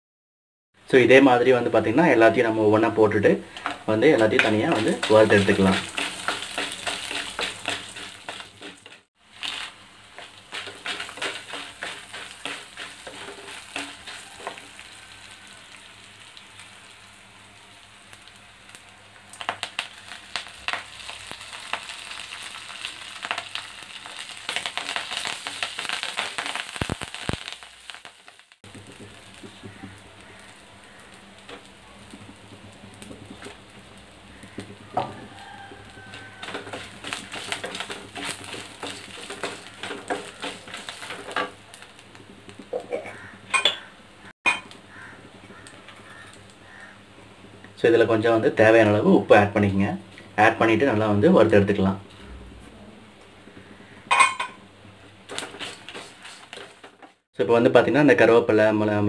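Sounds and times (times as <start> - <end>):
food sizzling in oil: 0.9 - 52.1, 53.3 - 57.3
wooden spatula scraping pan: 2.8 - 14.8, 34.4 - 41.6, 55.3 - 57.1.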